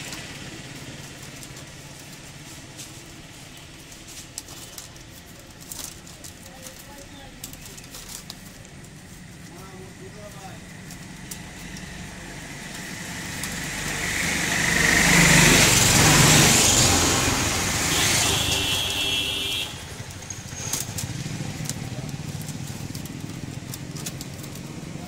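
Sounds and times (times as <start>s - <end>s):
clicks of bamboo strips: 0.0s - 25.0s
vehicle passing by: 9.5s - 25.0s.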